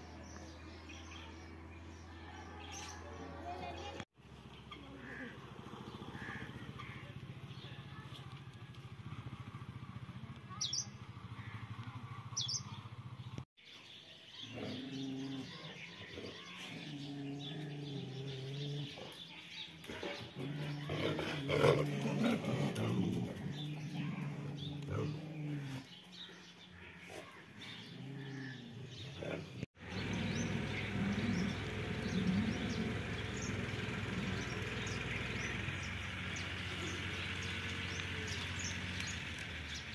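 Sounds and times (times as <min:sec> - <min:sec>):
motorcycle engine running: 0:04.2 - 0:13.4, 0:29.7 - 0:39.9.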